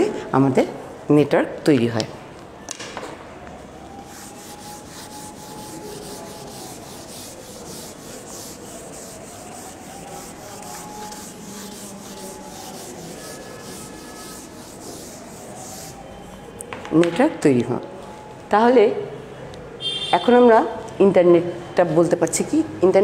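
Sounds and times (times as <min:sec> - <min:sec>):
eraser rubbing on whiteboard: 0:04.0 - 0:16.2.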